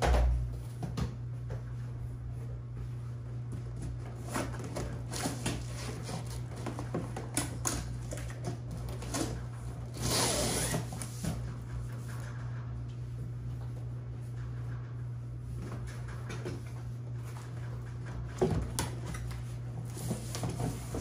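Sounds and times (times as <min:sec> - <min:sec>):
drawer scraping slide: 0:09.9 - 0:11.1.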